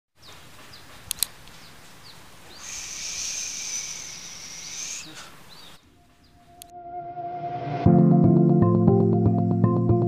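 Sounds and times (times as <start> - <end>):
falling bird chirps: 0.2 - 6.7
insects buzzing: 2.1 - 6.6.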